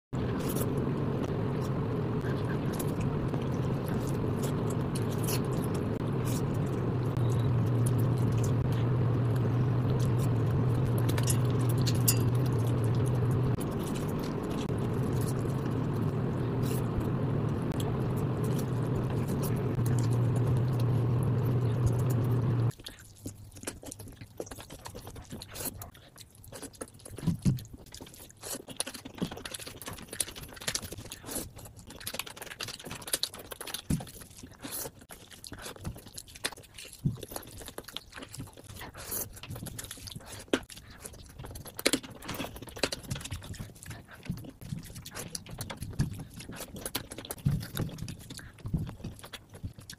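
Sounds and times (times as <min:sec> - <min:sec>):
steady low hum: 0:00.2 - 0:22.8
chewing and lip-smacking: 0:00.2 - 0:49.9.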